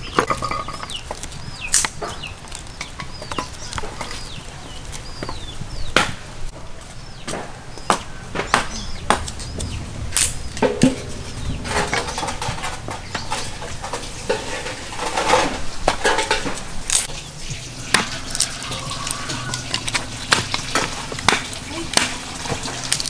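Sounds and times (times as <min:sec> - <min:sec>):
sticks clattering in stove: 0:00.0 - 0:05.4, 0:08.5 - 0:23.0
firewood splitting knocks: 0:19.7 - 0:23.0.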